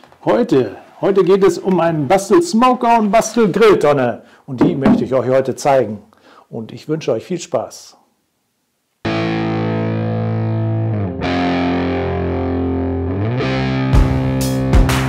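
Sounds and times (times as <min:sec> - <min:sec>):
drum hits: 0:04.6 - 0:05.3
distorted electric guitar chords: 0:09.1 - 0:15.0.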